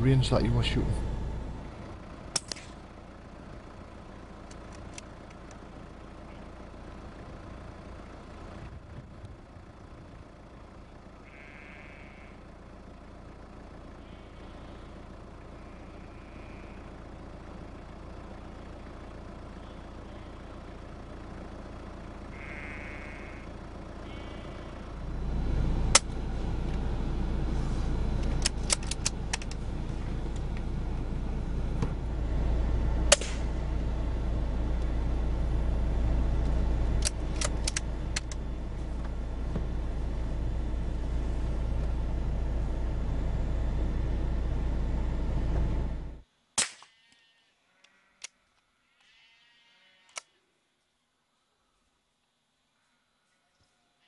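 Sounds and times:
low rumble: 0.0 - 3.6, 24.1 - 46.2
sheep-like bleats: 11.2 - 12.4, 15.6 - 17.0, 22.3 - 24.8, 47.0 - 48.2, 48.8 - 50.2
rifle shot crack: 33.1 - 33.5, 46.6 - 46.9.

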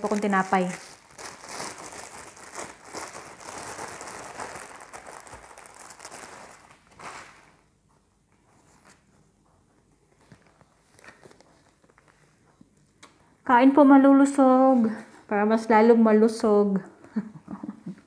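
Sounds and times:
plastic bag crinkling: 0.0 - 7.7.

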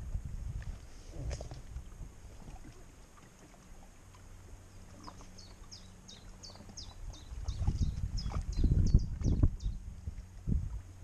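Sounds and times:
wind rumble on microphone: 0.0 - 3.0, 4.9 - 11.0
faint steady hum: 0.0 - 11.0
songbird chirping: 4.7 - 9.9.

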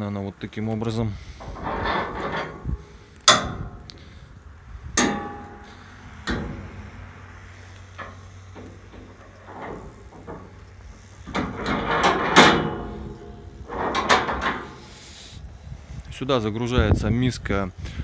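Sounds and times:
metal feeder clanking: 1.4 - 4.1, 5.0 - 7.2, 7.9 - 15.0.

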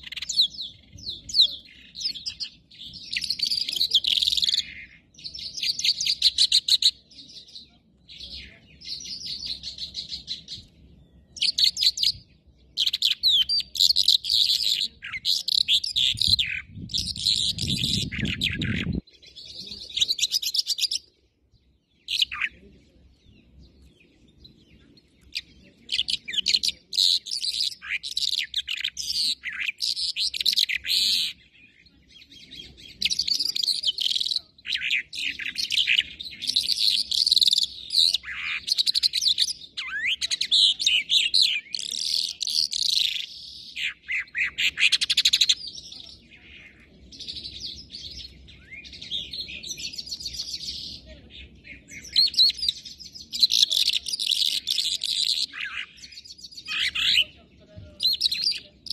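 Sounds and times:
songbird singing: 0.0 - 58.9.

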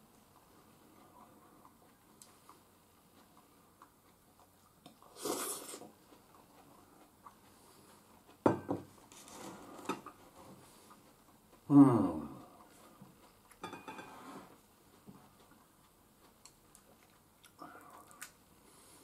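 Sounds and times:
soup slurped from a bowl: 5.1 - 5.9
bowl knocking on table: 8.5 - 8.9
dishes and chopsticks clinking: 13.6 - 14.3.

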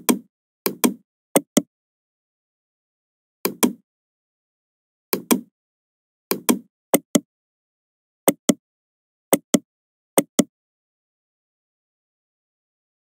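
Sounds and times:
computer mouse clicking: 3.5 - 3.8, 5.2 - 5.5.

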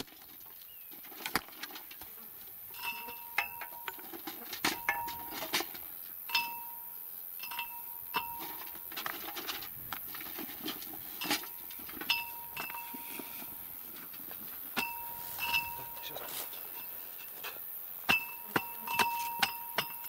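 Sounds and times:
stones clinking against metal: 2.7 - 20.0
scraping and rustling: 8.2 - 17.8.

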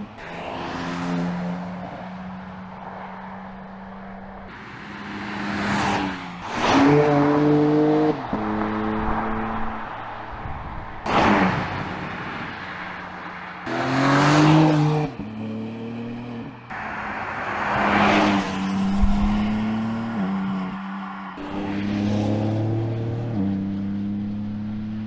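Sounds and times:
car engine accelerating: 13.6 - 25.0.

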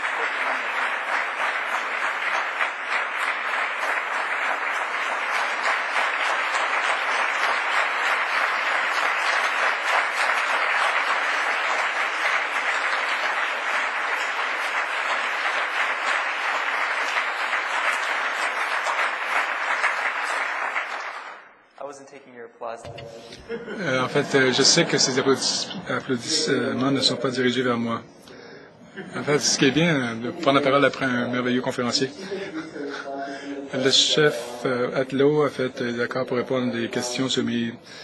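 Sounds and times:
audience applauding: 0.0 - 21.6, 23.2 - 27.8.

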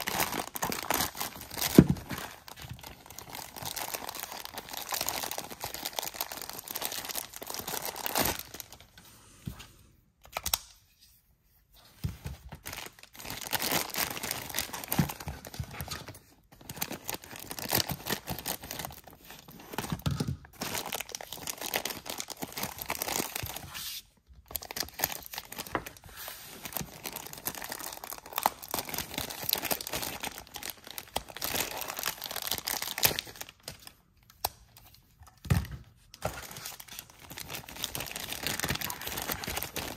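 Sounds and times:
plastic bags crinkling: 0.0 - 8.8, 12.6 - 19.5, 20.6 - 23.6, 26.6 - 33.7, 36.2 - 39.9.

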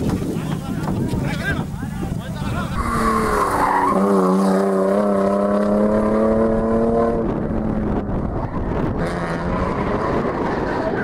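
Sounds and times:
car engine at high revs: 2.8 - 11.0.

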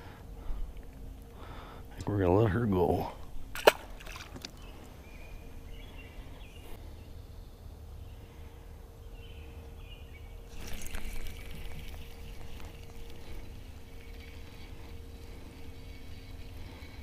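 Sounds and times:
water splashing and trickling: 3.5 - 4.7, 10.5 - 17.0.

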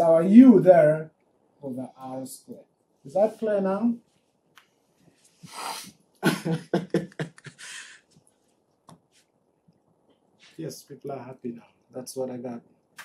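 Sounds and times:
hissing breath: 5.3 - 6.0, 7.5 - 8.1
breathy vocal burst: 7.5 - 8.0.

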